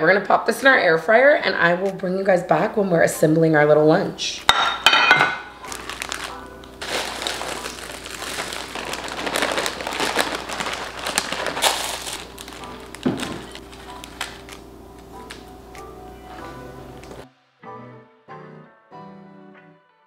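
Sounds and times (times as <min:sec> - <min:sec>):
plastic bag crinkling: 0:05.5 - 0:15.5
small packet being handled: 0:05.6 - 0:15.5.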